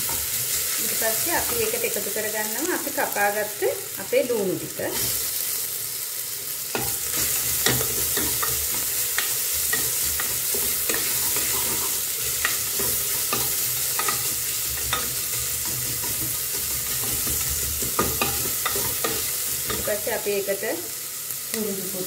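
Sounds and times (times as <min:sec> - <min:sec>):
onions sizzling in hot oil: 0:00.0 - 0:22.0.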